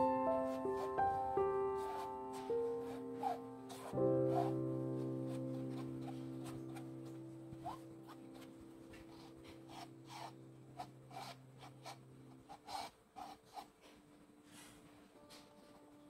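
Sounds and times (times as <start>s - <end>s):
palette knife scraping canvas: 1.8s - 14.0s.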